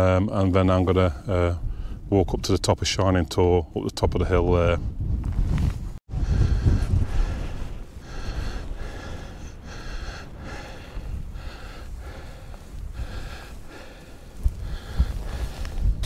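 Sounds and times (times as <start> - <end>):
wind rumble on microphone: 0.4 - 16.0
person breathing hard: 6.1 - 16.0.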